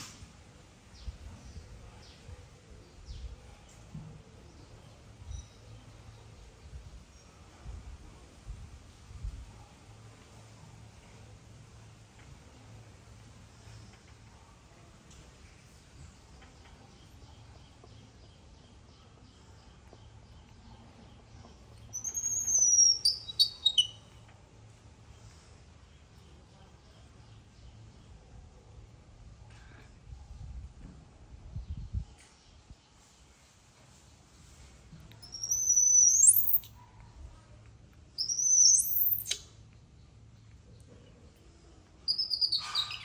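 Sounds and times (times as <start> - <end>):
baby monkey squealing: 22.0 - 23.9, 35.2 - 36.7, 38.2 - 39.4, 42.1 - 43.0.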